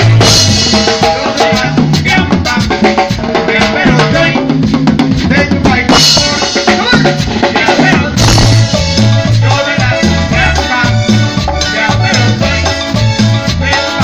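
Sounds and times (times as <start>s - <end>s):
snare and bass drum: 0.0s - 12.3s
live band playing: 0.0s - 14.0s
cymbal crashes: 8.2s - 9.0s.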